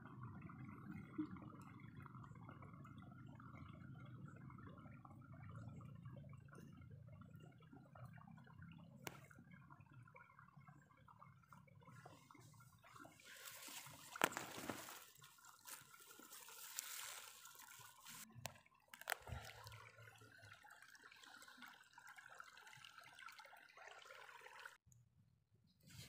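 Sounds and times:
water trickling and lapping: 0.0 - 24.8.

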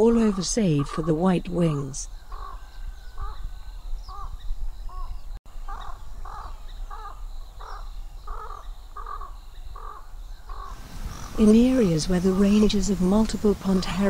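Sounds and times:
bird giving harsh calls: 5.6 - 13.9.

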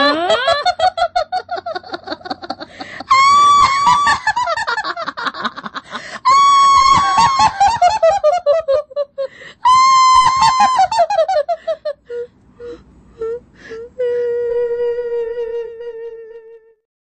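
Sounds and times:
high-pitched laughter: 0.0 - 12.0.

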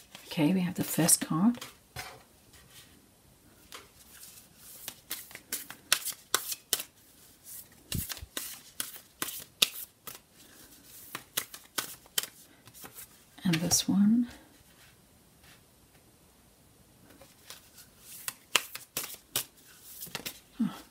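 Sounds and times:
cards being shuffled: 3.7 - 13.9, 17.1 - 20.5.

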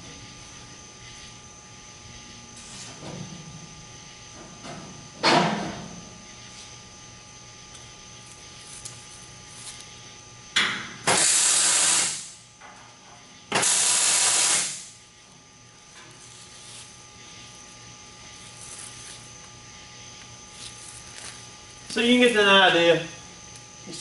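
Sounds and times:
welder hissing crackle: 11.1 - 12.4, 13.6 - 15.0.

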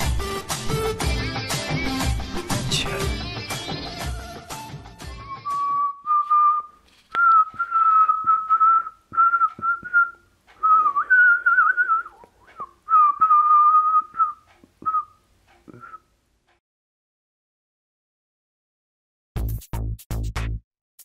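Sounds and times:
person whistling a slow tune: 5.2 - 16.1.

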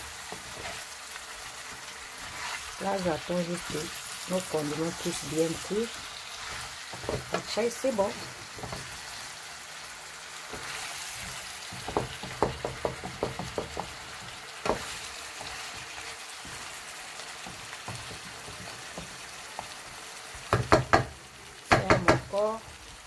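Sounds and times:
food sizzling in a frying pan: 0.0 - 23.0
spatula knocking against pan: 11.8 - 14.0, 14.6 - 14.9, 20.5 - 22.3.

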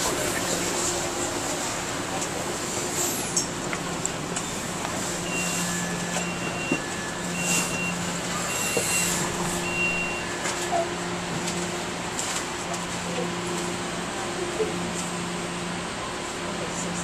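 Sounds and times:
trolley car hum: 0.0 - 17.0
two-tone door chime: 5.2 - 10.9.

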